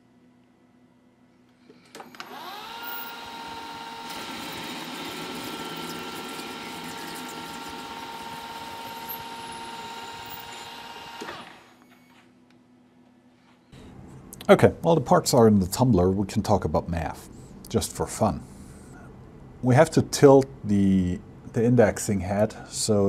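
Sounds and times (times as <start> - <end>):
milling machine spindle whine: 2.0 - 11.9
cutting tool hissing on metal: 2.2 - 11.8.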